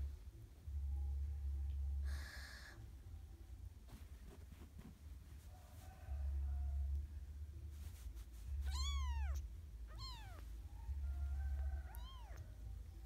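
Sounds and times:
kitten mewing: 8.7 - 10.4.

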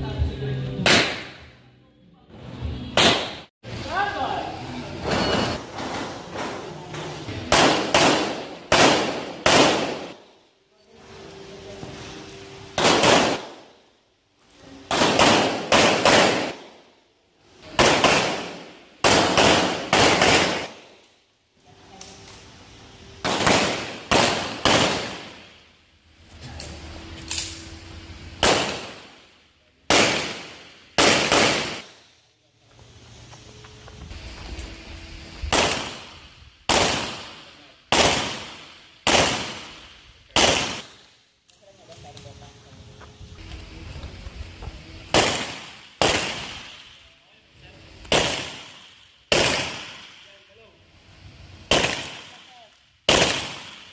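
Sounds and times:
pistol shots with echo: 0.8 - 1.4, 3.0 - 3.5, 7.5 - 10.2, 12.8 - 13.8, 14.9 - 16.8, 17.7 - 20.9, 23.2 - 25.5, 28.4 - 29.3, 29.9 - 32.0, 35.5 - 41.1, 45.1 - 47.0, 48.0 - 50.3, 51.7 - 53.9.

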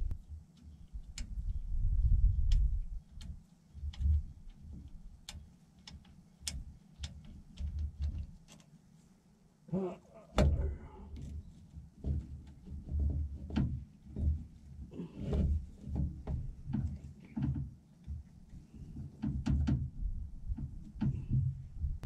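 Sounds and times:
metal clunks and scrapes: 12.0 - 17.7.

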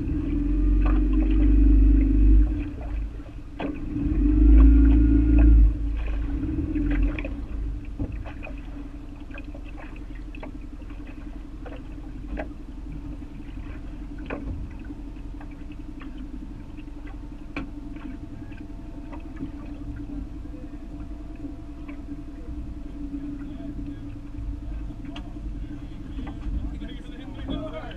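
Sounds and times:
boat motor humming: 0.0 - 27.9
light ticks and knocks: 9.3 - 12.6, 14.2 - 19.8, 25.0 - 25.4.

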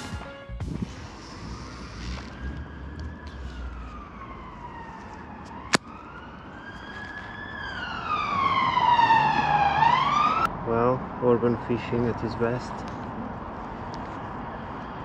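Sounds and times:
emergency siren wailing: 1.0 - 10.5.

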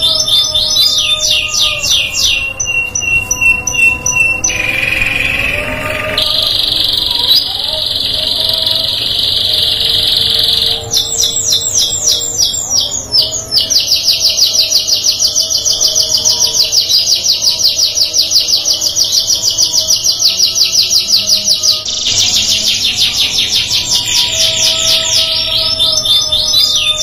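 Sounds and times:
canary singing: 0.0 - 27.0.

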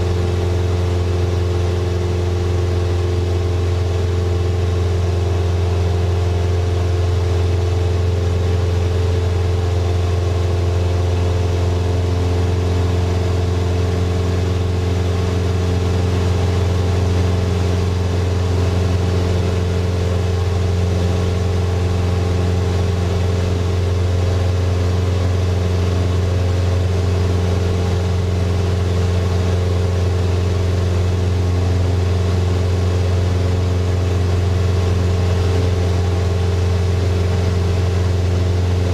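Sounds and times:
airplane engine and propeller droning: 0.0 - 38.9.

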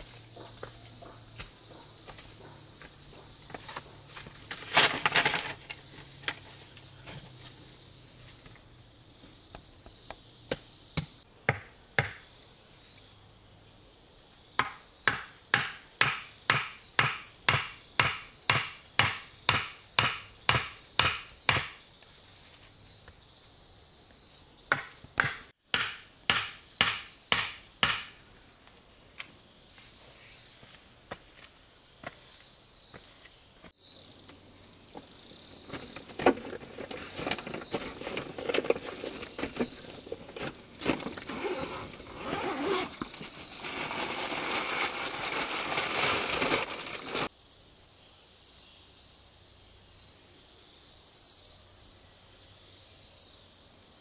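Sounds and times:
insects chirring: 0.0 - 54.0
hand tool striking wood: 10.5 - 12.2, 14.6 - 21.8, 24.7 - 28.2
rustling: 35.7 - 47.3.

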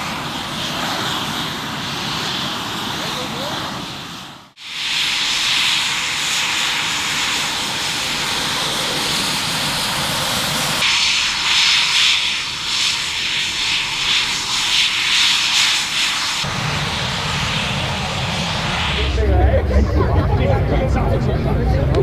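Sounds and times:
jet engines whining: 0.0 - 22.0.

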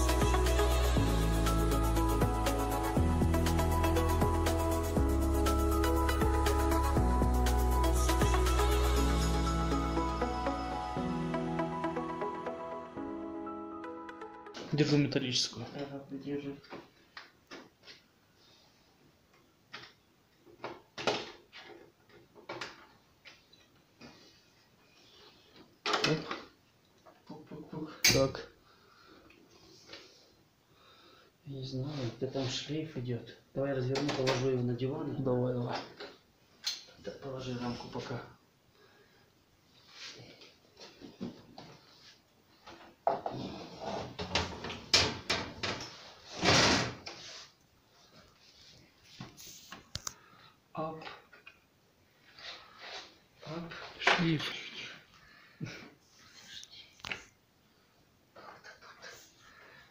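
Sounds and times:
tv parts knocking and clattering: 44.2 - 47.0.

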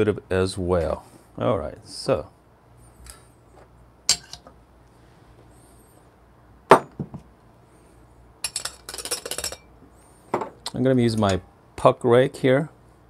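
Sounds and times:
portafilter knocking into stand: 6.7 - 7.2.

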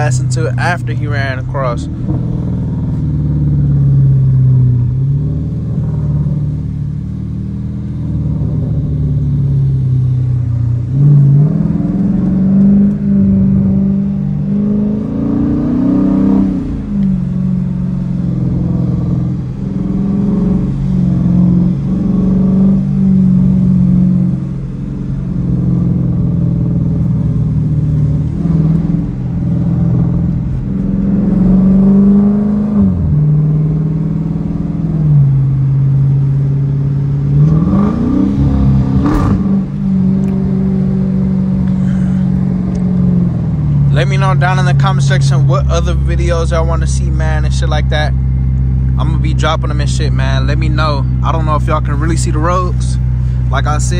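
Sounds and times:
car engine drone: 0.0 - 53.9.

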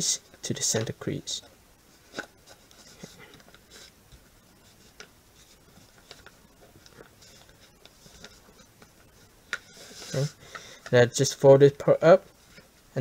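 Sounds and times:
soft paper crackles: 1.9 - 11.5
paper rustling and creasing: 2.0 - 11.0.

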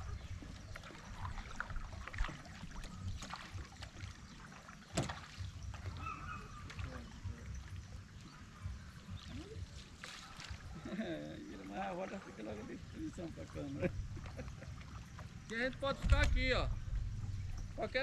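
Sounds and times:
paddle strokes in water: 0.0 - 18.0
low rumble: 15.9 - 18.0.

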